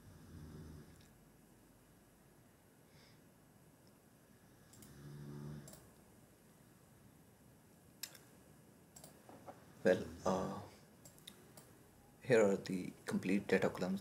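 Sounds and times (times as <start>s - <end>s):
faint computer mouse clicks: 4.7s - 5.0s, 5.6s - 5.9s, 9.0s - 9.5s.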